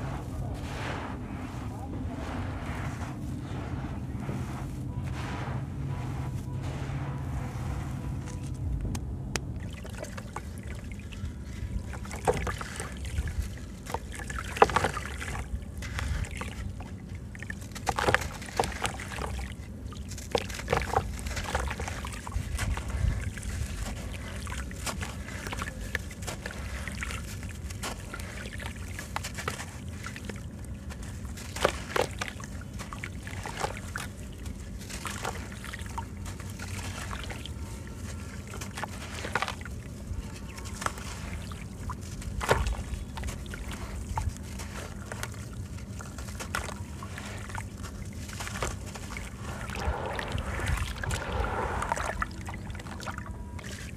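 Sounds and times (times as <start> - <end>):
sand splashing into water: 0.0 - 8.6, 20.0 - 53.9.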